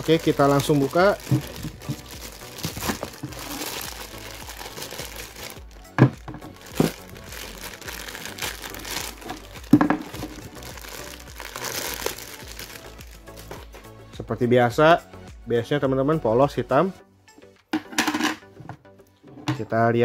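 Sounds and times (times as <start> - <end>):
plastic bags crinkling: 0.0 - 13.8.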